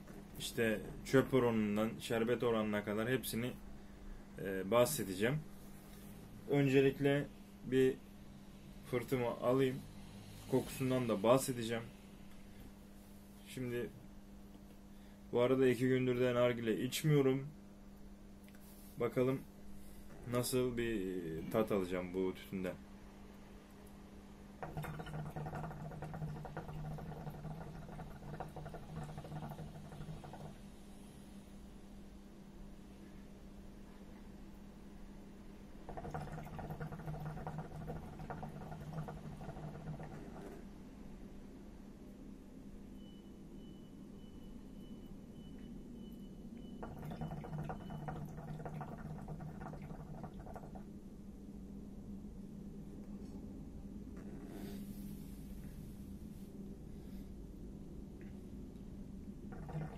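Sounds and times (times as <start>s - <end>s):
hookah water bubbling: 24.6s - 30.7s, 35.8s - 40.8s, 46.8s - 50.9s, 59.5s - 59.9s.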